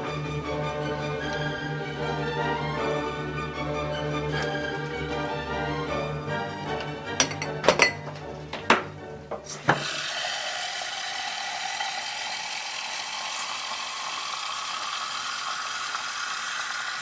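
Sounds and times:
background music: 0.0 - 10.0
glass clinking: 4.4 - 4.8, 6.8 - 8.2
tap water filling a glass: 9.7 - 17.0.

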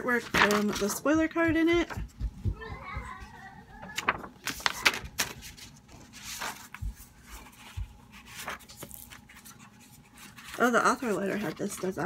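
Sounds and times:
paper rustling: 0.0 - 2.1, 3.8 - 12.0
soft low thumps: 1.0 - 3.8.

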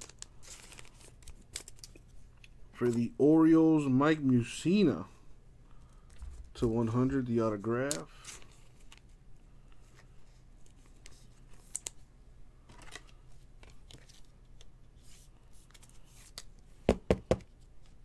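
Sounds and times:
trading cards rustling and sliding: 0.0 - 3.1, 7.6 - 9.2, 9.8 - 12.0, 12.6 - 16.6.

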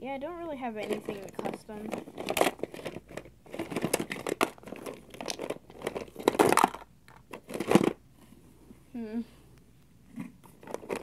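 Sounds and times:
plastic toys clattering: 0.7 - 8.0, 10.2 - 11.0.

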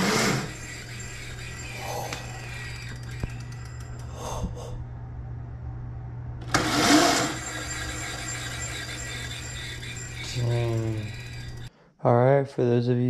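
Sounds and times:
electric motor whir: 0.0 - 4.1, 6.4 - 11.7
low hum: 0.0 - 11.7.

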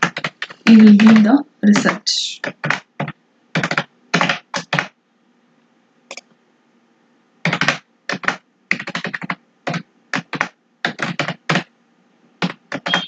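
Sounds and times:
computer keyboard typing: 0.0 - 4.9, 7.4 - 11.7, 12.4 - 13.0.

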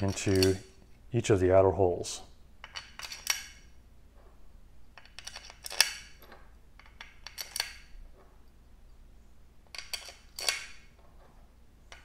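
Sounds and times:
bolts and washers clinking: 0.0 - 1.1, 2.6 - 3.9, 4.8 - 9.0, 9.6 - 12.0.

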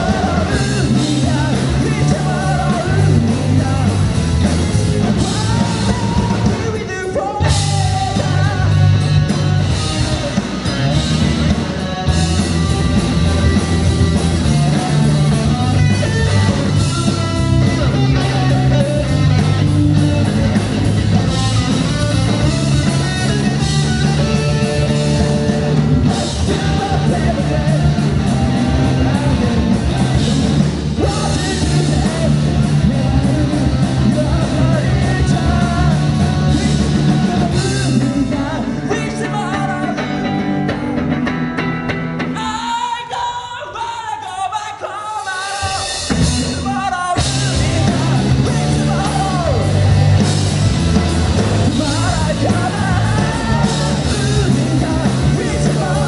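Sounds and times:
person singing: 0.0 - 10.6, 21.2 - 41.0, 42.3 - 50.5, 51.4 - 56.0
drum kit: 0.0 - 43.2, 45.2 - 56.0
electric guitars: 0.0 - 56.0.

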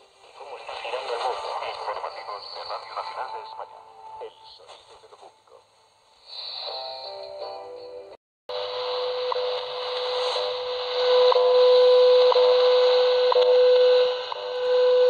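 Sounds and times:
radio static hiss: 0.0 - 7.4, 8.5 - 15.0
steady time signal tone: 6.4 - 15.0.

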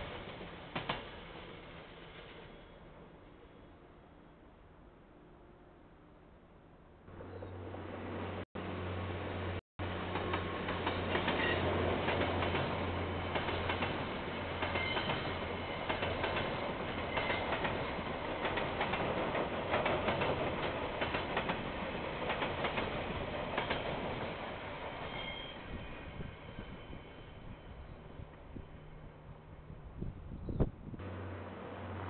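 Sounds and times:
train wheels clacking on rail joints: 10.0 - 24.5
locomotive engine hum: 31.0 - 32.0.

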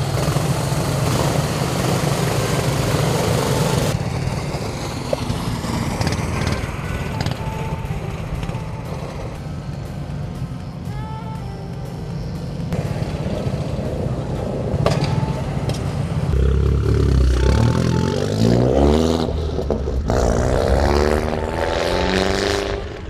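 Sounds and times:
go-kart engines running: 0.0 - 23.0
background music: 6.3 - 23.0.

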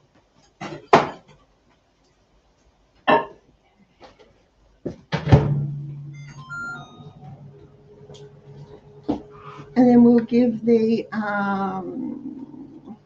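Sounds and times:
microwave humming: 5.5 - 11.9
short beeps: 6.1 - 9.8.

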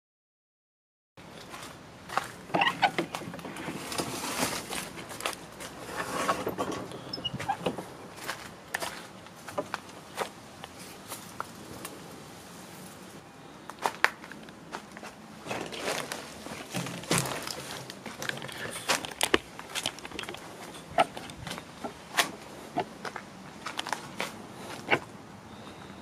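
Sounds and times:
footsteps crunching on debris: 1.4 - 5.9, 8.1 - 11.5, 13.7 - 25.1.

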